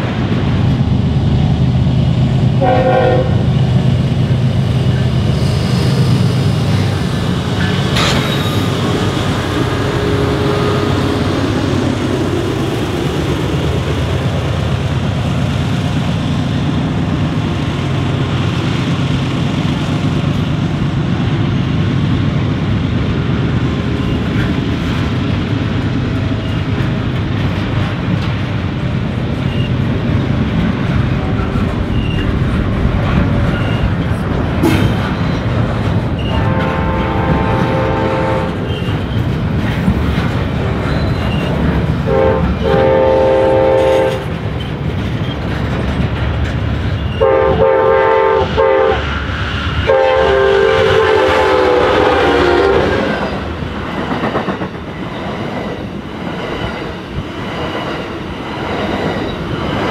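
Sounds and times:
diesel train rumbling by: 0:00.0 - 0:59.9
train wheels clacking: 0:04.8 - 0:16.1, 0:23.4 - 0:47.6, 0:50.7 - 0:59.9.

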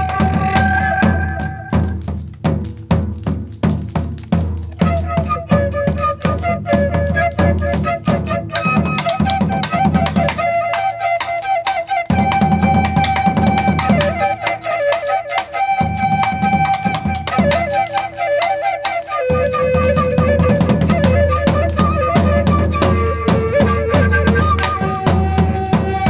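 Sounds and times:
flute playing: 0:00.0 - 0:02.1, 0:04.6 - 0:26.0
drum kit playing a beat: 0:00.0 - 0:10.6.

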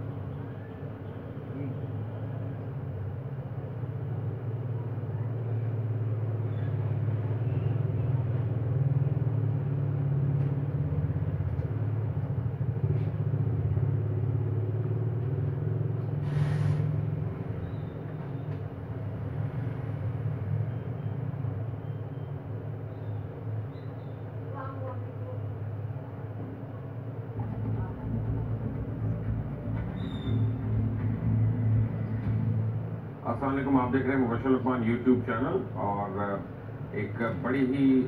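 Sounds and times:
engine droning hum: 0:00.0 - 0:38.0
short hiss: 0:16.2 - 0:17.0.

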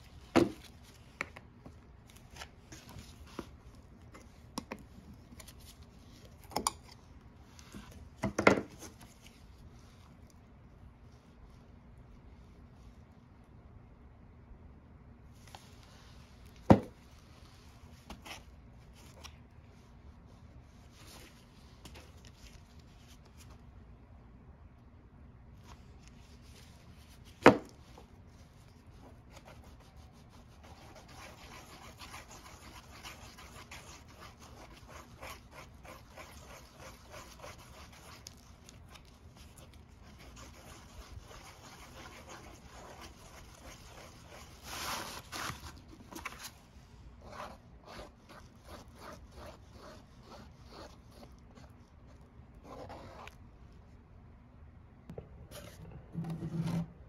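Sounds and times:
spreader scraping paste: 0:28.9 - 0:45.7.

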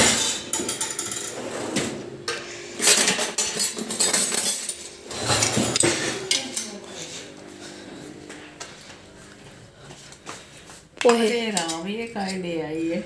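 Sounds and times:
cutlery clattering in drawer: 0:00.0 - 0:02.0, 0:02.8 - 0:06.8.

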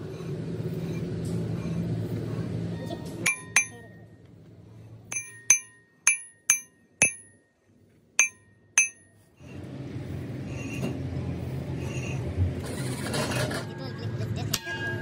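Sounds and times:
metal object clinking: 0:03.3 - 0:04.0, 0:05.1 - 0:07.4, 0:08.2 - 0:09.1.

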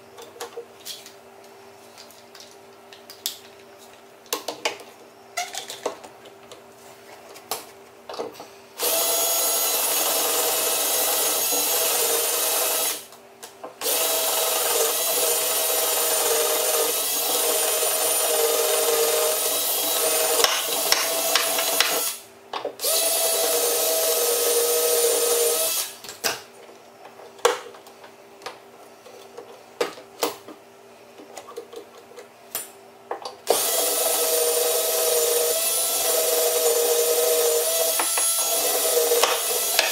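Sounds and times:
cordless drill into wood: 0:08.8 - 0:13.0, 0:13.8 - 0:22.2, 0:22.8 - 0:26.0, 0:33.5 - 0:39.9.

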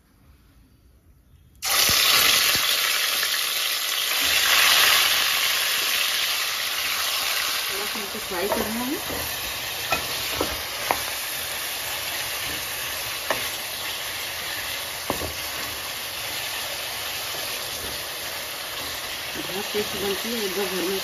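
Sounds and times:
chicken sizzling in hot oil: 0:01.6 - 0:21.0
wooden spatula knocking on pan: 0:08.3 - 0:11.2, 0:12.3 - 0:13.7, 0:14.4 - 0:16.5, 0:17.2 - 0:20.4.

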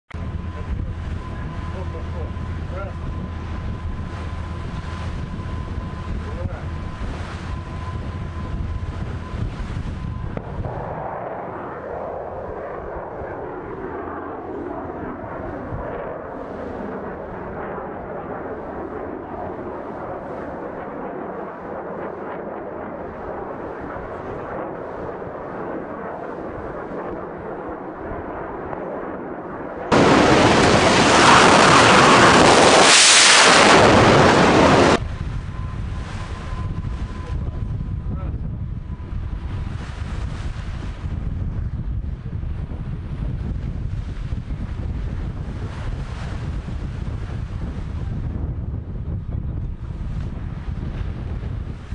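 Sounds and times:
distant rocket boosters rushing: 0:10.3 - 0:17.2, 0:29.5 - 0:35.0
missile launch roar: 0:10.4 - 0:13.8, 0:29.9 - 0:35.0.

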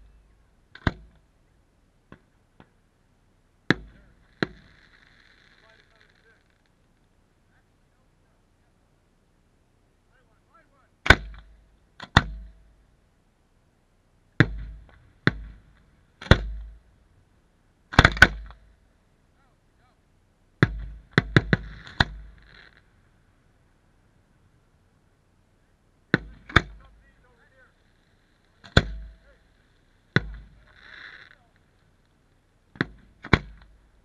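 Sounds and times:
fireworks bangs: 0:03.7 - 0:06.7, 0:14.4 - 0:17.1, 0:20.6 - 0:23.4, 0:26.1 - 0:34.0
fireworks crackle: 0:03.7 - 0:07.8, 0:20.8 - 0:25.2, 0:26.3 - 0:34.0.

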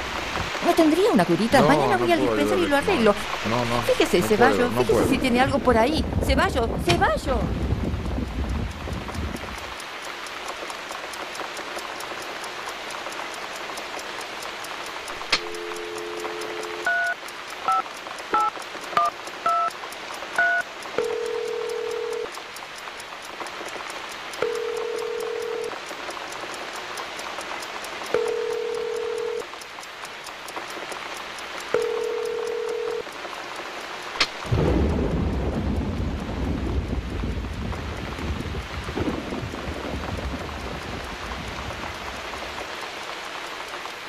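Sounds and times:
steady hiss: 0:00.0 - 0:44.0
click: 0:12.9 - 0:31.0, 0:31.6 - 0:36.0
telephone key beeps: 0:15.4 - 0:17.8, 0:18.4 - 0:19.7, 0:20.4 - 0:22.3, 0:31.8 - 0:33.0
telephone ringback tone: 0:15.4 - 0:17.8, 0:20.4 - 0:22.3, 0:24.4 - 0:25.7, 0:28.2 - 0:29.4, 0:31.8 - 0:33.0
low rumble: 0:34.5 - 0:42.2.

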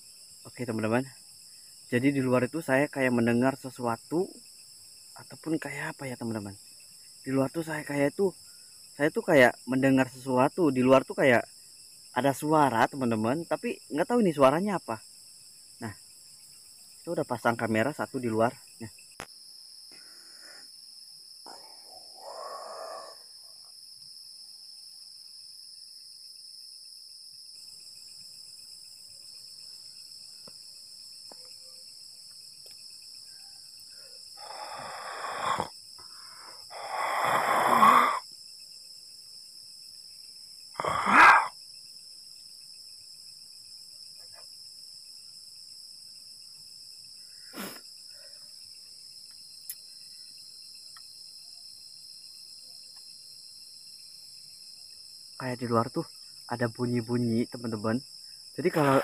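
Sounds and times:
night insects chirring: 0:00.0 - 0:59.0
faint click: 0:49.3 - 0:49.8.

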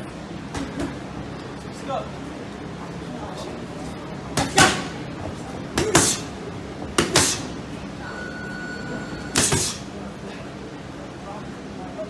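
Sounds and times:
boxing gloves hitting mitts: 0:04.4 - 0:05.0, 0:05.8 - 0:06.3, 0:06.9 - 0:07.5, 0:09.4 - 0:09.8.

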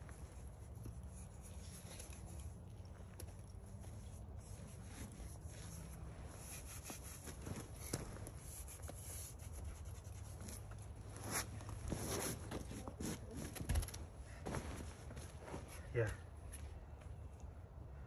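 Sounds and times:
shoes and hands scraping on rock: 0:11.2 - 0:13.5.

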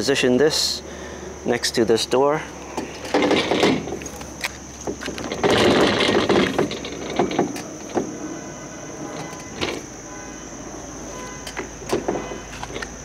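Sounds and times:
rattling and scraping: 0:02.6 - 0:10.0.

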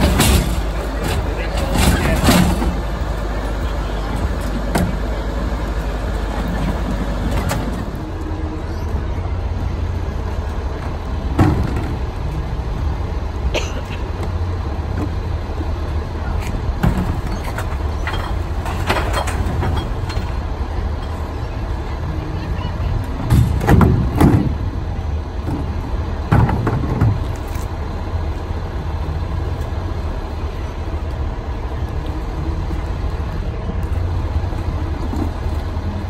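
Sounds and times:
knocks and clanks: 0:00.0 - 0:03.2, 0:10.8 - 0:12.2, 0:16.8 - 0:20.4, 0:23.2 - 0:24.7, 0:25.4 - 0:27.4
garbage truck engine rumbling: 0:00.0 - 0:36.0.

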